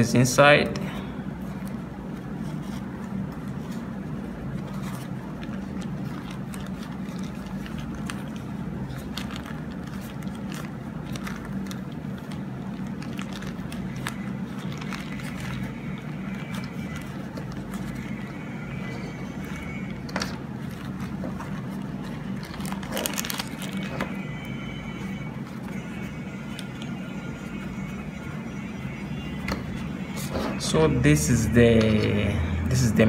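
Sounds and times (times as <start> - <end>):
low background hum: 0.0 - 33.0
pouch rustling and clicks: 19.4 - 24.2.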